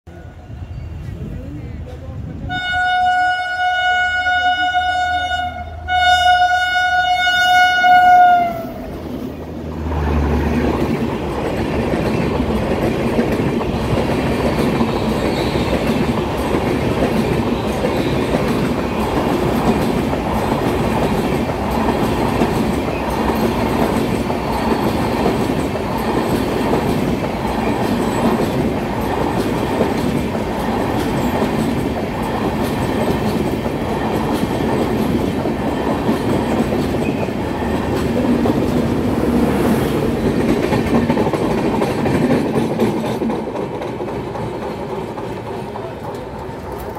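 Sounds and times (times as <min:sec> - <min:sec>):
train wheels rumbling on rails: 0:00.2 - 0:46.9
clickety-clack of rail joints: 0:09.9 - 0:46.9.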